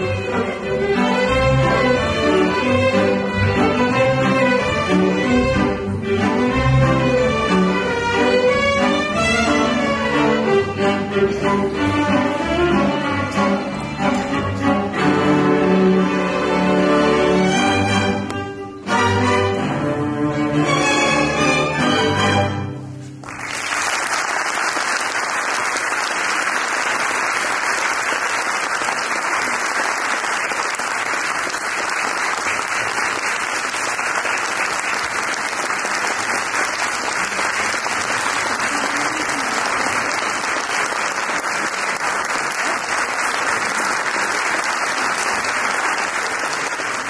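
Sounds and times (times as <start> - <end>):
audience applauding: 23.2 - 47.0.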